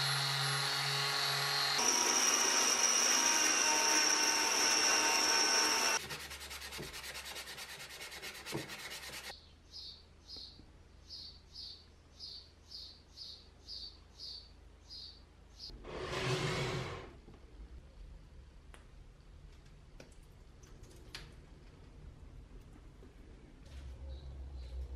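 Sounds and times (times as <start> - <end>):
belt file grinding steel: 0.0 - 9.3.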